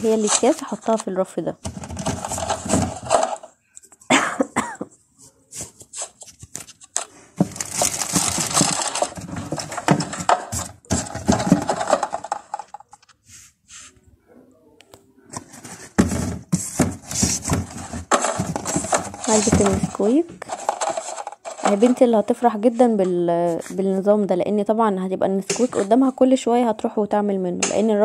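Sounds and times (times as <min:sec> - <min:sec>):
plastic packets rustling: 0:00.0 - 0:03.6, 0:05.6 - 0:13.2, 0:15.4 - 0:22.8
boxes knocking when set down: 0:07.4 - 0:12.6, 0:15.5 - 0:21.9.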